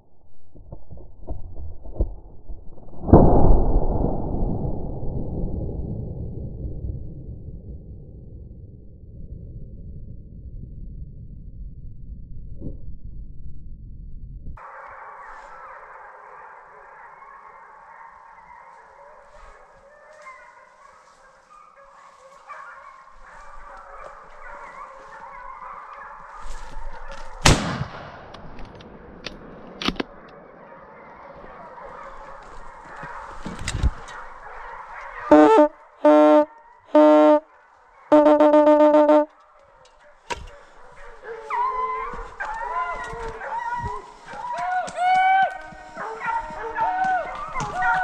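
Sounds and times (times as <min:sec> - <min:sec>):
hounds baying: 0:14.6 - 0:27.4, 0:30.2 - 0:48.0
hunting horn short blasts: 0:35.3 - 0:37.5, 0:38.1 - 0:39.3.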